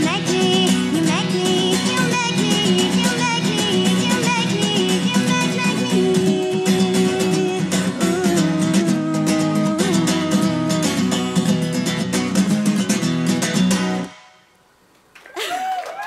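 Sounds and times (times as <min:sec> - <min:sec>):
woman singing: 0:00.0 - 0:11.5
acoustic guitar strummed and picked: 0:00.0 - 0:14.6.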